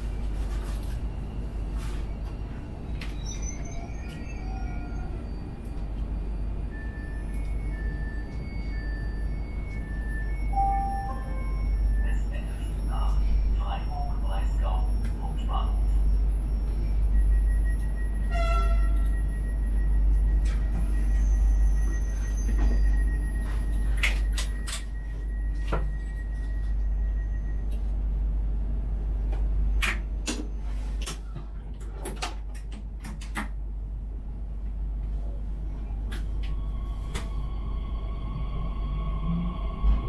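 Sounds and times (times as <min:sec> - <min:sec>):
train low hum: 0:00.0 - 0:40.0
train whine moving off: 0:03.6 - 0:27.7, 0:36.4 - 0:40.0
short pitched beep: 0:06.7 - 0:13.1.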